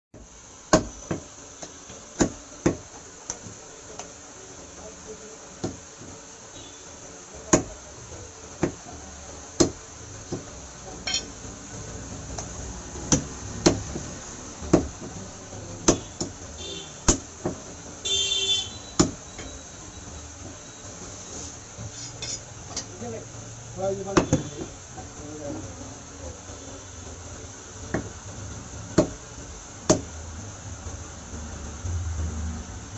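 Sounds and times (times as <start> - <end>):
cleaver chopping meat and bone: 14.7 - 15.0, 24.2 - 24.5, 29.0 - 29.2.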